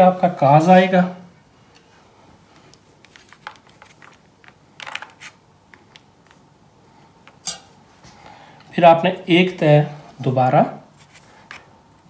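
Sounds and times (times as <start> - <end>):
cheese rustling onto foil tray: 2.6 - 5.4.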